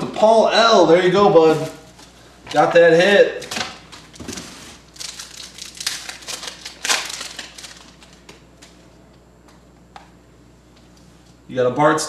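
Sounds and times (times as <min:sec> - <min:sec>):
card wrapper crinkling: 0:03.9 - 0:08.8.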